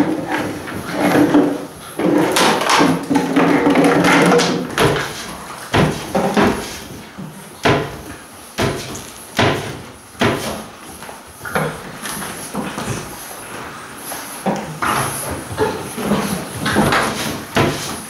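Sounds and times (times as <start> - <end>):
knocks against wooden walls: 2.0 - 6.8, 7.6 - 10.6, 16.6 - 18.0.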